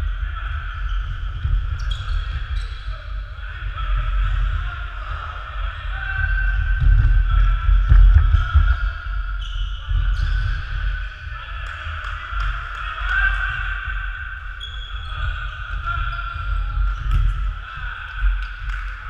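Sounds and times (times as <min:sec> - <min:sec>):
distant players' voices: 0:00.0 - 0:19.0.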